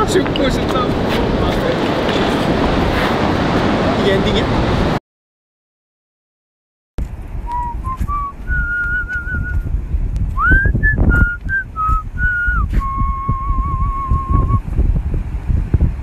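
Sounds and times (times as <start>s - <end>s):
wind rumble on microphone: 0.0s - 5.0s, 7.0s - 16.0s
person whistling a melody: 7.5s - 9.6s, 10.4s - 14.6s.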